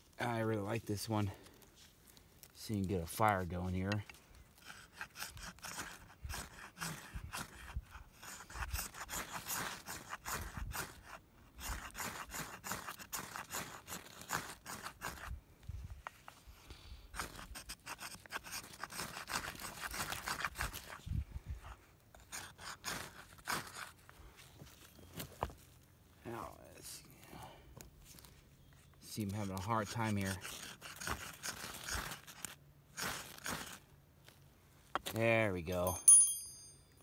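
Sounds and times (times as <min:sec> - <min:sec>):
ferro rod scraped with striker: 0:02.6 - 0:15.3, 0:29.0 - 0:33.8.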